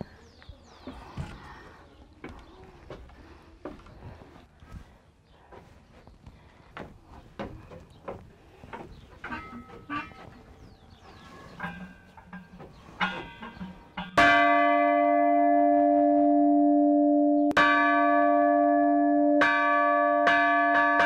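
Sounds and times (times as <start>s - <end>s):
church bells ringing: 11.6s - 21.0s.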